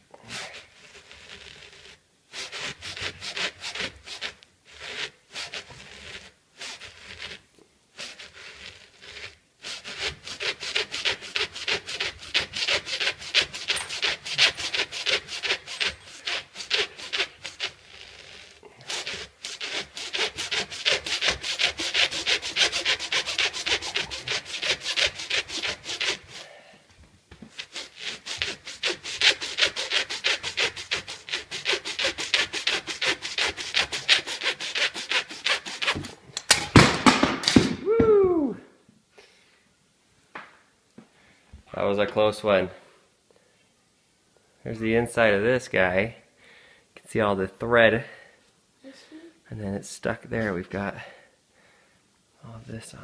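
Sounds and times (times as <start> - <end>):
blade sawing through baseball: 0.2 - 26.6, 27.4 - 37.7.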